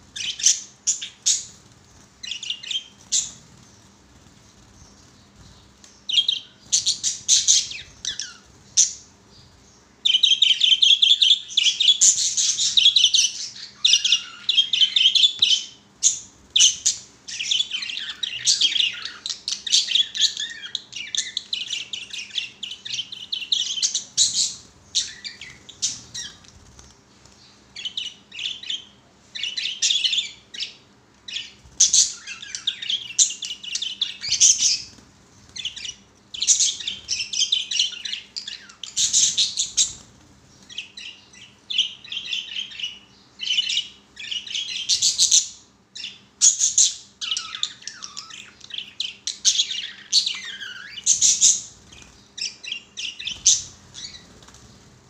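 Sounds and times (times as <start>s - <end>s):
budgerigars chattering and chirping: 27.8s - 35.0s, 40.8s - 54.4s.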